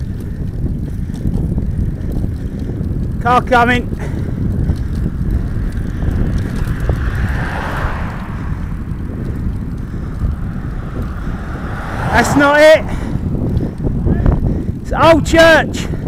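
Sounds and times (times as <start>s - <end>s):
wind buffeting microphone: 0.0s - 16.0s
car tyre noise passing: 4.1s - 15.2s.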